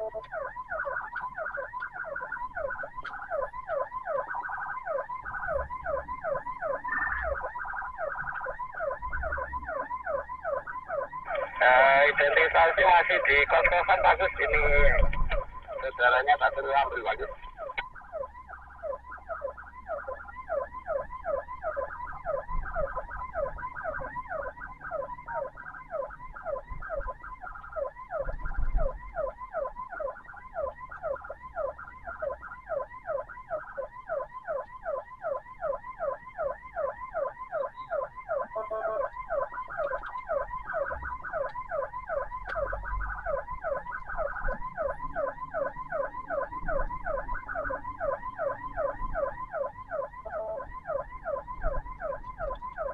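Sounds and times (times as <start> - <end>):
ambulance siren yelping: 0.0 - 52.9.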